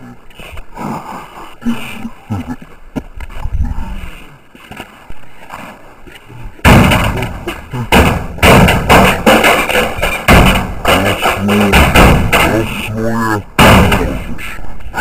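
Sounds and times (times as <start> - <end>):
wooden planks banging on sheet metal: 6.6 - 12.9, 13.5 - 14.3.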